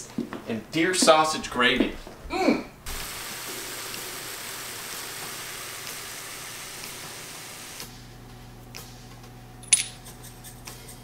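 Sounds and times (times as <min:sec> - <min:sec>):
low electrical hum: 0:00.0 - 0:04.9, 0:07.3 - 0:11.0
sausage sizzling in a skillet: 0:02.9 - 0:07.8.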